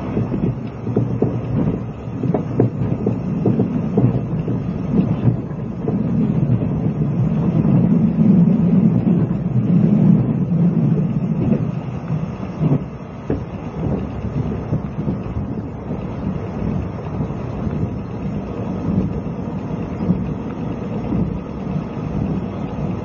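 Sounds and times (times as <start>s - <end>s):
irregular knocks: 0.0s - 9.5s
train wheels rumbling on rail: 0.0s - 23.0s.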